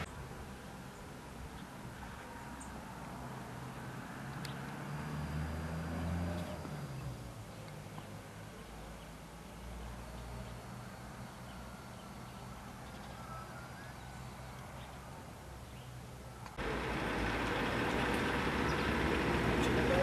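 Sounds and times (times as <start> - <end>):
low outdoor rumble: 16.2 - 20.0
low engine-like hum: 16.5 - 20.0.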